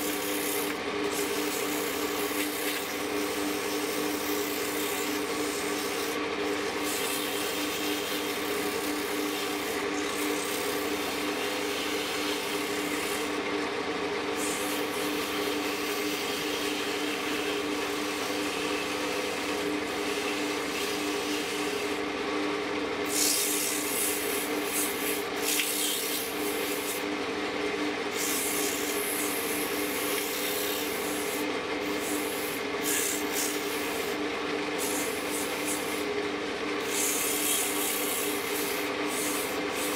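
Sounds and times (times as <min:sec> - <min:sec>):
sandpaper rasping on spinning wood: 0:00.0 - 0:13.4, 0:14.3 - 0:22.0, 0:23.0 - 0:27.1, 0:28.1 - 0:34.2, 0:34.8 - 0:36.1, 0:36.8 - 0:39.9
lathe motor humming: 0:00.0 - 0:23.0.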